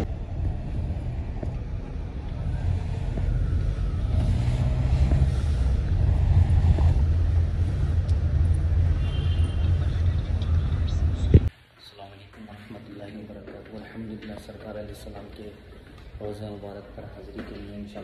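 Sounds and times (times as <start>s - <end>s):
car engine and road rumble: 0.0s - 11.5s.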